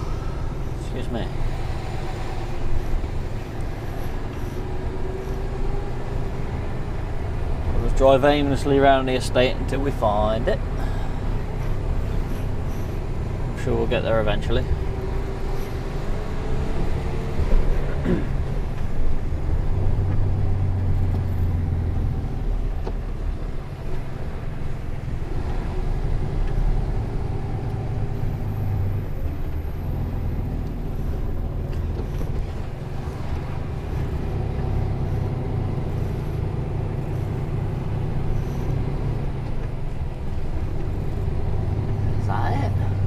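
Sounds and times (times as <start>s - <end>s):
lorry diesel engine running: 0.0s - 43.0s
road noise: 0.0s - 43.0s.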